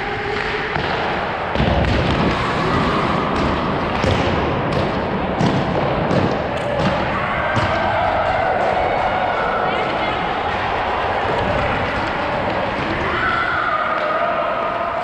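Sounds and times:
sticks and pucks clacking: 0:00.0 - 0:13.3.

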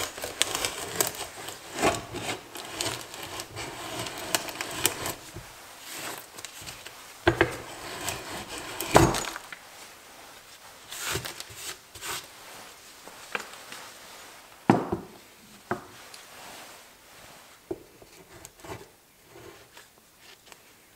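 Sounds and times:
auger bit scraping wood: 0:00.0 - 0:09.5.

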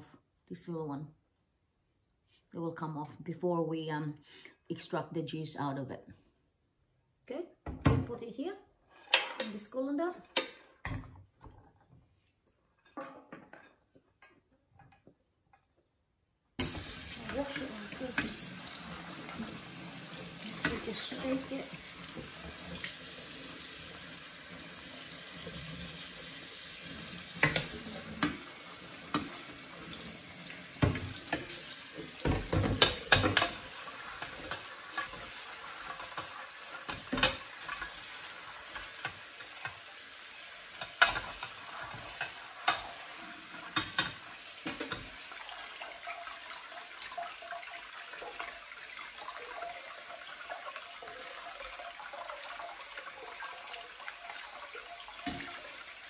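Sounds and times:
tap water running: 0:16.6 - 0:56.0.

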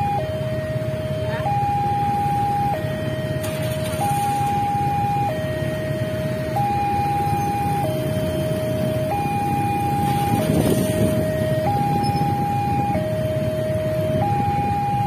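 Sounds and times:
level crossing two-tone alarm: 0:00.0 - 0:15.0
road traffic: 0:00.0 - 0:15.0
motorcycle: 0:03.3 - 0:15.0.

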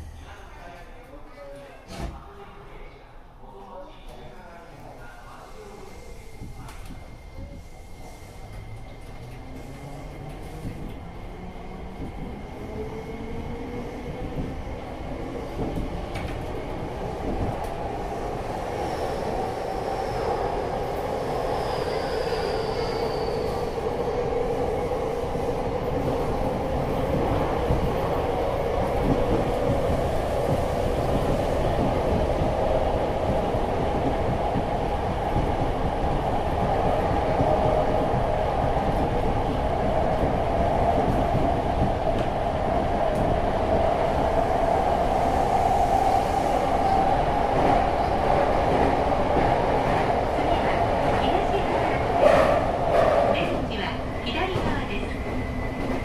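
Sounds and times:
faint high squeal: 0:21.7 - 0:23.8.

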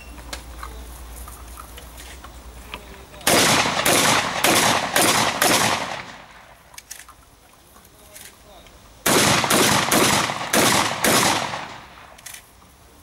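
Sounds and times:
gunshots: 0:03.2 - 0:06.6, 0:09.0 - 0:12.2.

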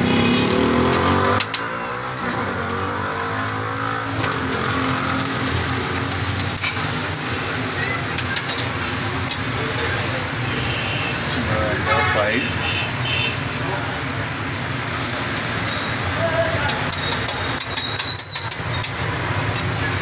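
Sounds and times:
griddle sizzling: 0:00.0 - 0:20.0
street traffic: 0:00.0 - 0:20.0
metal spatula clicking on griddle: 0:00.9 - 0:01.7, 0:08.2 - 0:09.5, 0:15.4 - 0:20.0.

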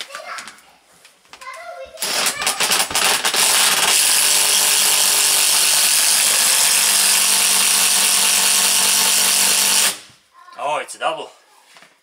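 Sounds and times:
cordless drill boring through wood: 0:02.0 - 0:10.1.

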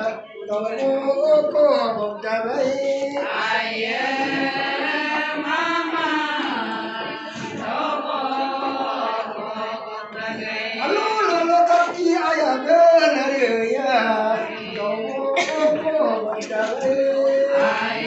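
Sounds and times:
women chanting a song: 0:03.2 - 0:11.0.

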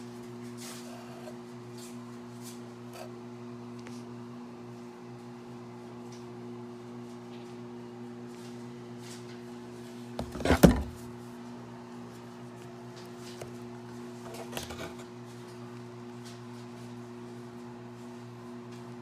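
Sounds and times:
cardboard rustling: 0:10.2 - 0:11.1
knocks of bottles in cardboard box: 0:10.2 - 0:11.1.

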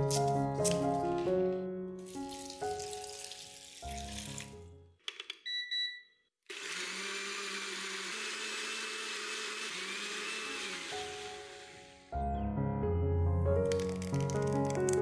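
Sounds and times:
background music: 0:00.0 - 0:05.0, 0:10.8 - 0:15.0
blender motor running: 0:06.5 - 0:12.1.

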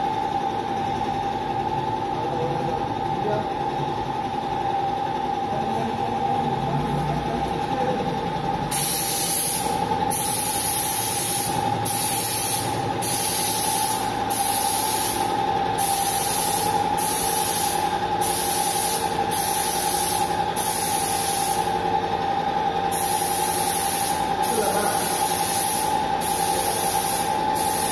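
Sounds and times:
steady hum: 0:00.0 - 0:27.9
paint spray gun hissing: 0:08.7 - 0:21.7, 0:22.9 - 0:27.9.

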